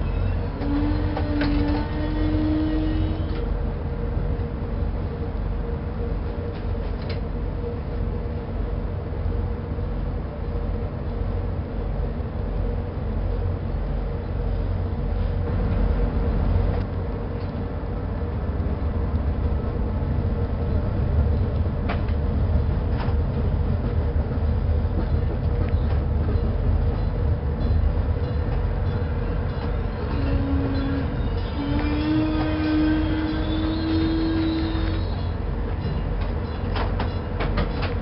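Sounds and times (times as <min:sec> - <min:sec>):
diesel locomotive engine rumble: 0:00.0 - 0:38.0
wheels clicking over rail joints: 0:35.7 - 0:38.0.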